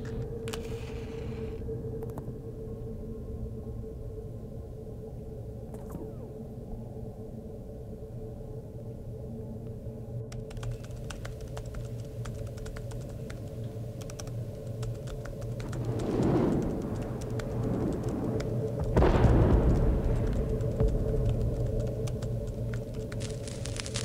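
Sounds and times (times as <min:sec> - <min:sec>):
steady low hum: 0:00.0 - 0:24.0
light irregular clicks: 0:09.6 - 0:24.0.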